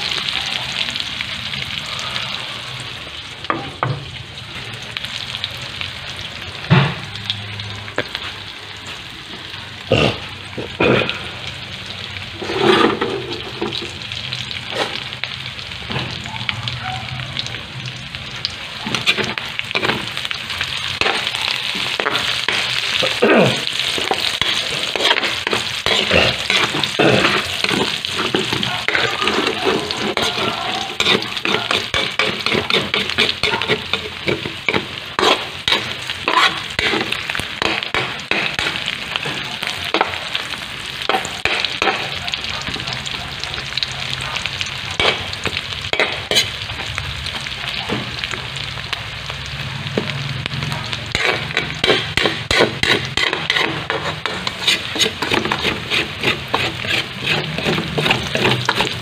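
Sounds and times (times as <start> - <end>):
onion sizzling in hot oil: 0.0 - 59.0
metal spoon scraping wok: 12.3 - 14.0, 18.8 - 42.8, 45.0 - 46.9, 50.0 - 59.0.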